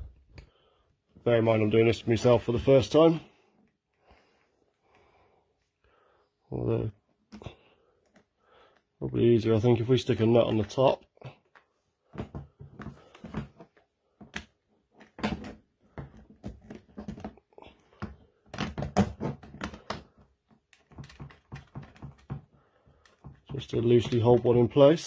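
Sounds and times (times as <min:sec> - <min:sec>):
plastic and metal parts clicking: 0:10.5 - 0:24.7.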